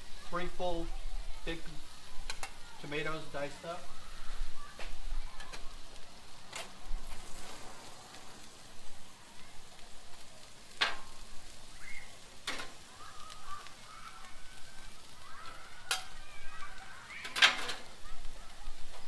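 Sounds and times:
tomatoes sizzling on griddle: 0:00.0 - 0:19.0
metal spatula scraping griddle: 0:06.5 - 0:08.6.

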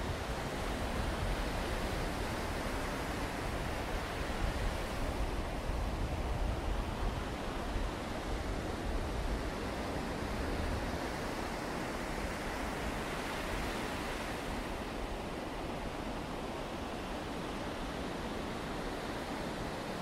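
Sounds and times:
wind rumbling on microphone: 0:00.0 - 0:16.8.

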